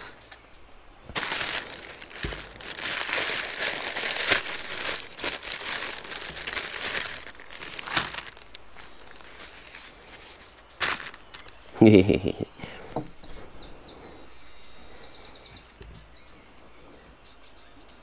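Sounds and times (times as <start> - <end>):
paper bag crinkling and rustling: 1.1 - 11.7.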